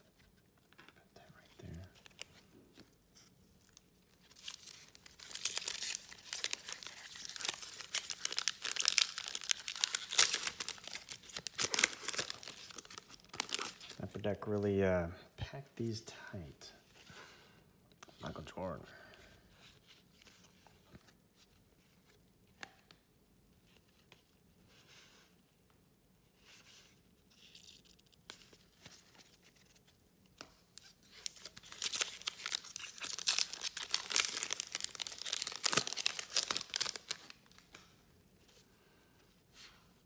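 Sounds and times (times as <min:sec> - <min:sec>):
wrapper tearing and crinkling: 0:03.6 - 0:14.0, 0:30.8 - 0:37.8
card pack wrapper handled: 0:03.7 - 0:14.0, 0:30.8 - 0:37.8.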